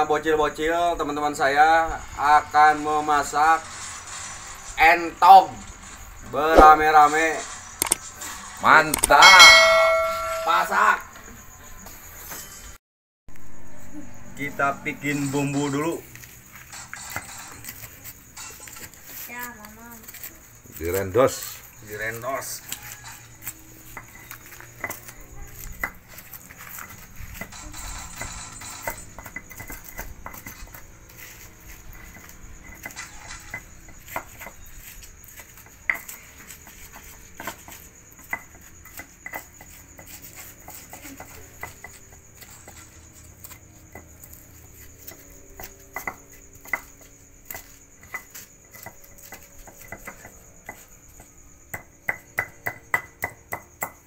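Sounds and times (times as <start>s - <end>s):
stone pestle pounding in mortar: 51.7s - 54.0s.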